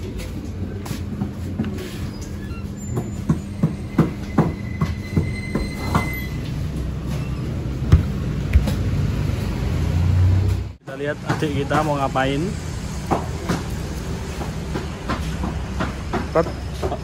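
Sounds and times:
faint thin squeal: 0:02.0 - 0:06.5.

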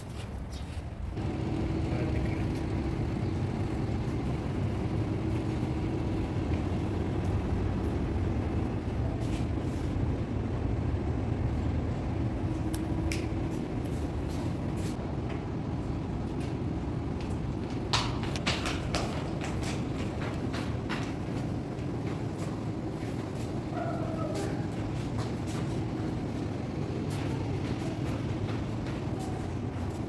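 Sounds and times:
low mechanical hum: 0:00.0 - 0:30.0.

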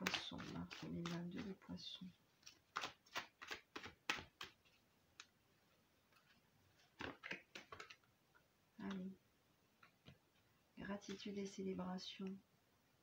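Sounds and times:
cards being shuffled: 0:00.0 - 0:01.6, 0:02.4 - 0:05.3, 0:06.1 - 0:08.1.

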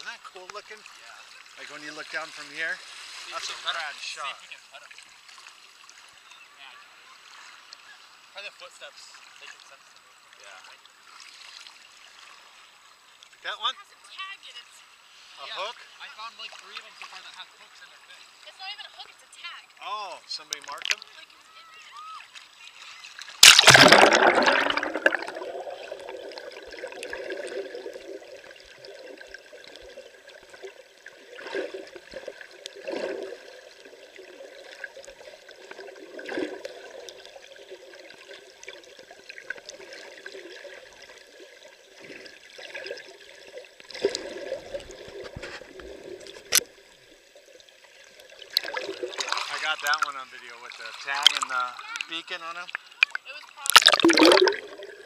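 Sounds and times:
muffled underwater water sloshing: 0:22.3 - 0:55.0
camera splashing into water: 0:23.4 - 0:25.6, 0:53.0 - 0:55.0.

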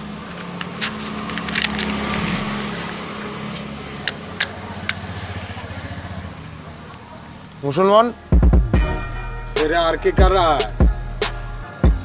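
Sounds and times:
vehicle engine hum: 0:00.0 - 0:08.3.

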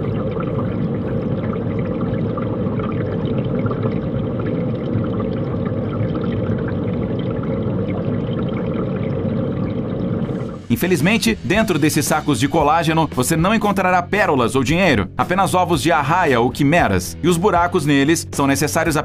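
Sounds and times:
water rushing: 0:00.0 - 0:12.6.

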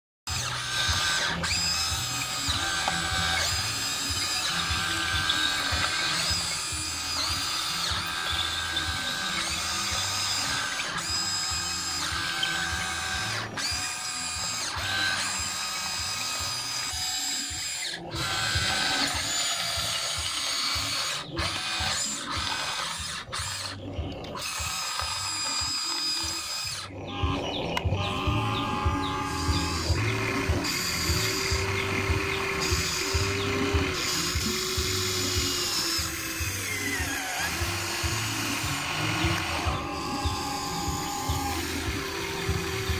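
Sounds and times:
electric motors whining: 0:00.3 - 0:42.9.

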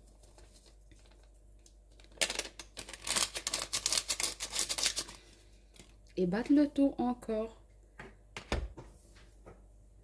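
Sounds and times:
paper sachet crinkling: 0:00.0 - 0:05.3.

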